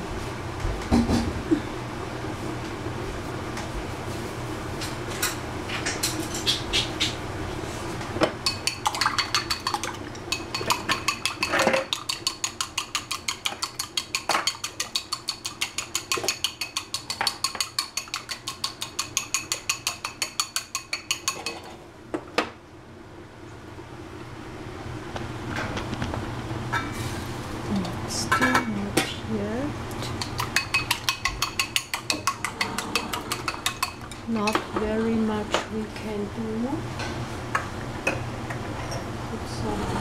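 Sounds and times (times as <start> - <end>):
steady low hum: 0.0 - 40.0
chopsticks beating eggs in a bowl: 8.4 - 21.6, 29.9 - 35.0.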